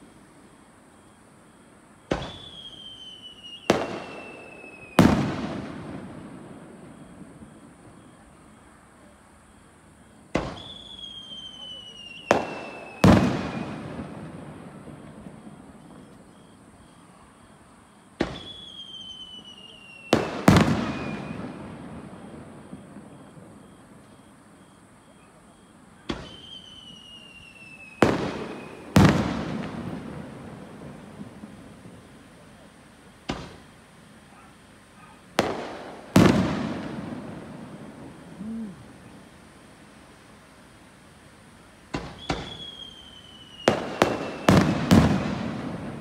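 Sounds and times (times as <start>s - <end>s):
firework bangs: 2.0s - 8.7s, 10.3s - 17.1s, 18.1s - 39.9s, 41.5s - 46.0s
high falling whistle: 2.1s - 5.0s, 10.5s - 13.8s, 18.3s - 20.2s, 23.1s - 28.9s, 42.1s - 44.7s.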